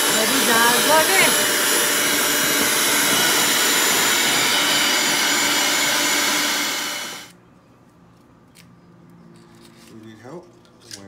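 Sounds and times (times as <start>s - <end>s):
electric hand mixer whirring: 0.0s - 7.3s.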